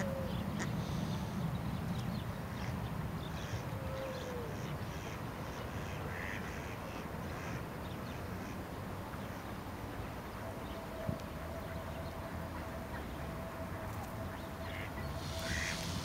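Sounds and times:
birds calling: 0:00.0 - 0:16.0
ducks quacking: 0:04.5 - 0:08.6, 0:14.6 - 0:16.0.

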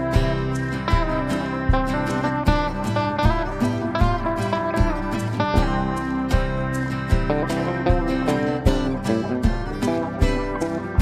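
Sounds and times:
music with steady beat: 0:00.0 - 0:11.0.

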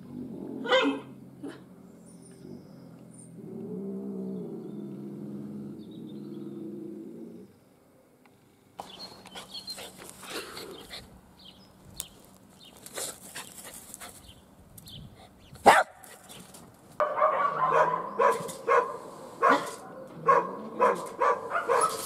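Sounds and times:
small dog barking: 0:00.6 - 0:01.6, 0:15.6 - 0:16.0, 0:17.0 - 0:22.0.

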